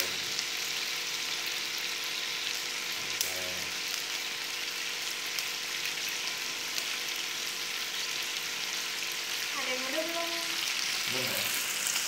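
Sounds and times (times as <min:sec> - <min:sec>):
meat skewers sizzling on grill pan: 0:00.0 - 0:12.0
small crackles and pops: 0:03.1 - 0:04.1.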